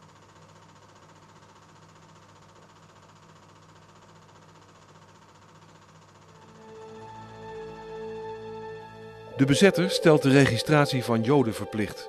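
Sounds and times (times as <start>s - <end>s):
mechanical hum with flutter: 0.0s - 8.1s
soft music: 6.3s - 12.0s.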